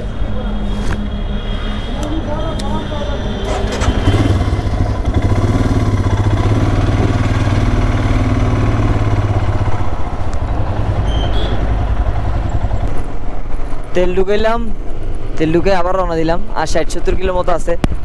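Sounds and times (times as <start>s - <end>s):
motorcycle engine running: 3.5s - 13.7s.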